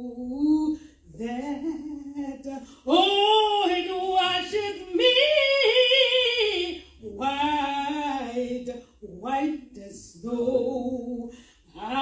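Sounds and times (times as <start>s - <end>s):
woman breathing: 11.3s - 11.8s.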